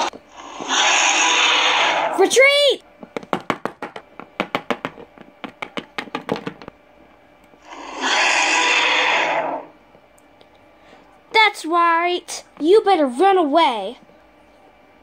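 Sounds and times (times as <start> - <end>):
loud hissing: 0.0 - 2.3, 7.6 - 9.7.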